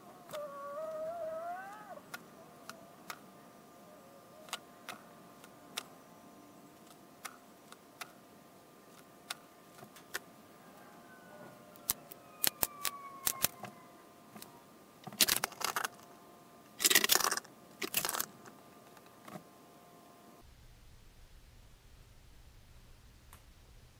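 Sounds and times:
faint steady hum: 0.0s - 23.9s
blocks rattling and scraping: 15.2s - 16.0s, 16.8s - 18.5s.

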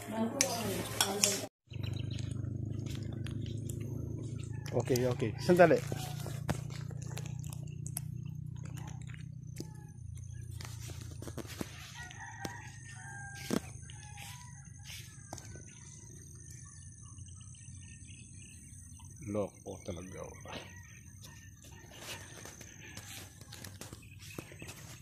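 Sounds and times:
distant bird calls: 1.7s - 25.0s
scattered clicks: 6.6s - 11.4s.

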